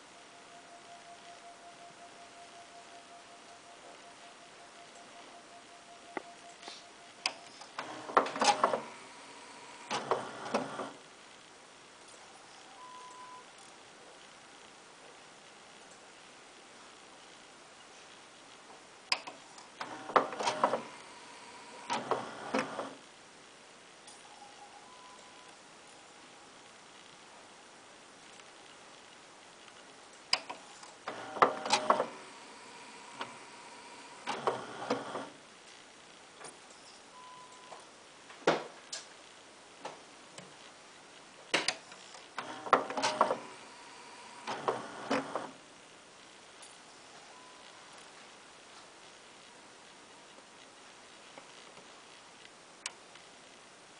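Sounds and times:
cd changer click: 0:07.2 - 0:11.0, 0:30.3 - 0:35.3, 0:42.4 - 0:45.6
motor whirring and mechanical clatter: 0:07.5 - 0:11.0, 0:30.8 - 0:35.4, 0:42.0 - 0:45.6.

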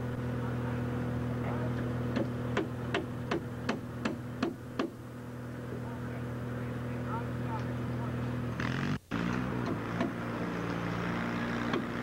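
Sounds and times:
low engine hum: 0:00.0 - 0:12.0
sharp knocks: 0:02.1 - 0:05.0, 0:09.6 - 0:10.2.

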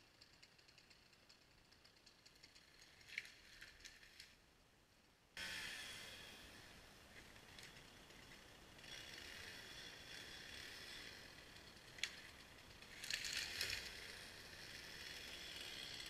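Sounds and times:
chainsaw running faintly: 0:00.0 - 0:04.1, 0:05.4 - 0:16.0
chainsaw cutting into tree: 0:05.4 - 0:06.6, 0:08.7 - 0:12.2, 0:12.8 - 0:16.0.

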